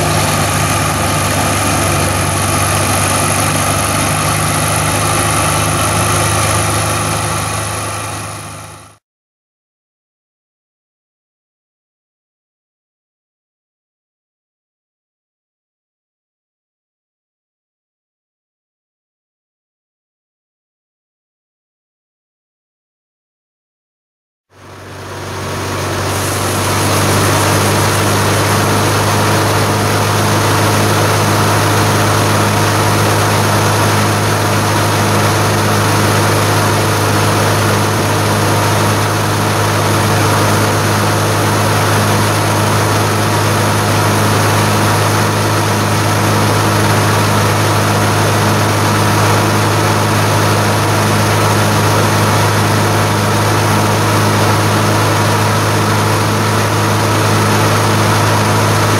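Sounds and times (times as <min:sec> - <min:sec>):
auger unloading grain: 0:00.0 - 0:09.0, 0:24.6 - 0:58.9
combine harvester engine drone: 0:00.0 - 0:09.0, 0:24.6 - 0:58.9.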